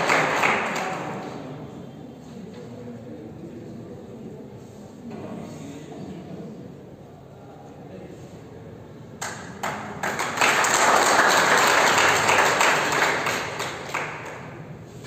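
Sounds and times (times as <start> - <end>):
audience applause: 0.0 - 1.2, 9.6 - 14.6.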